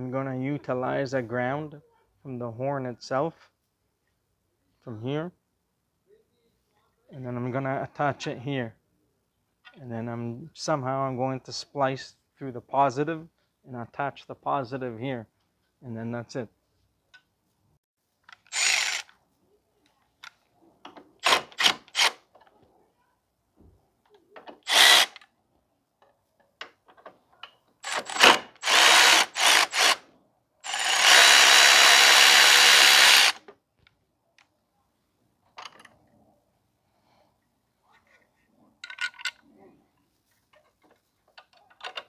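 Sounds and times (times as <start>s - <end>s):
cordless power drill running: 18.5s - 19.1s, 24.7s - 25.2s, 27.8s - 30.0s, 30.6s - 33.4s.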